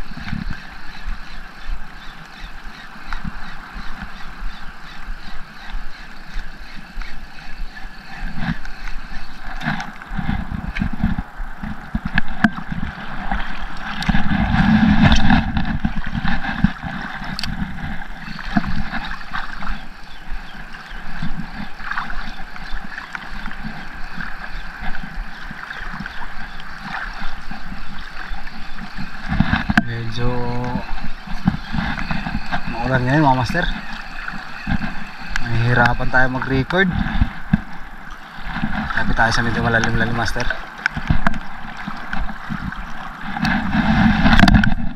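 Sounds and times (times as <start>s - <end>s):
seawater sloshing: 0.0s - 44.9s
wind buffeting microphone: 0.0s - 44.9s.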